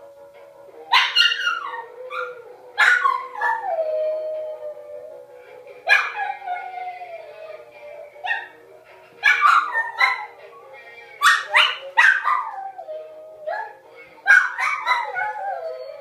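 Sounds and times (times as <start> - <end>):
music: 0.0 - 16.0
small dog howling: 0.9 - 5.2, 5.9 - 7.6, 11.2 - 16.0.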